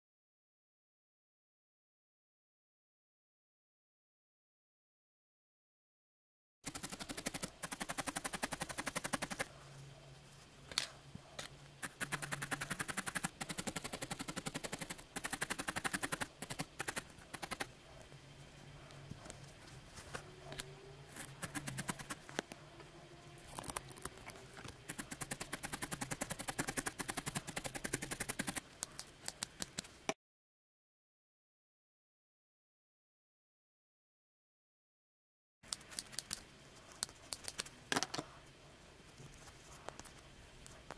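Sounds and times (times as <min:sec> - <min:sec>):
felting needle stabbing wool: 0:11.8 - 0:17.7.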